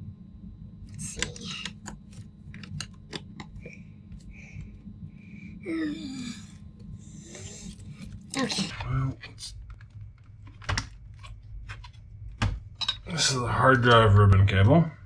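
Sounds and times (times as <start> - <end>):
person grunting: 5.6 - 6.5.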